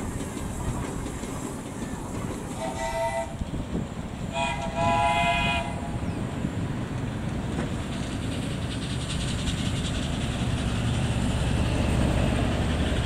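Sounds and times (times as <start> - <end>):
miniature steam train rumbling: 0.0 - 13.0
steam whistle: 2.6 - 3.4, 4.3 - 6.0.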